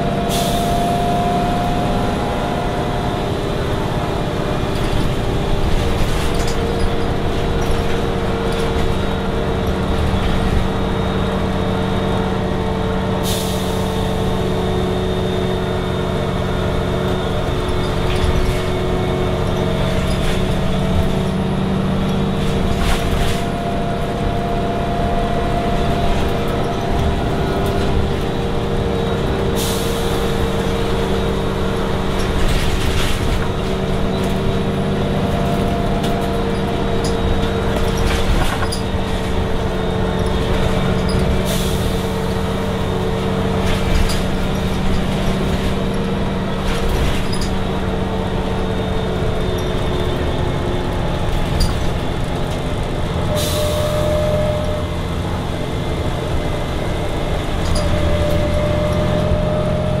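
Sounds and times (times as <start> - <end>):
bus engine drone: 0.0 - 60.0
air brake hisses: 0.3 - 0.7, 13.2 - 14.0, 29.6 - 30.3
rising gearbox whine: 13.8 - 60.0.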